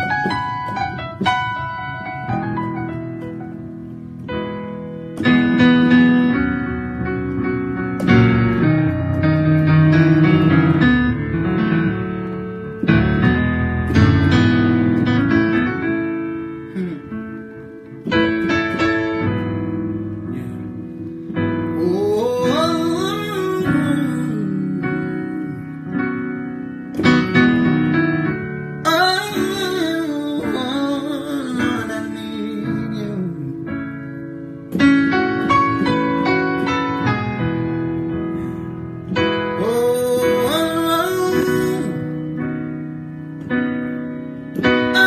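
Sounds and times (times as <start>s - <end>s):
electric piano chords: 0.0s - 45.0s.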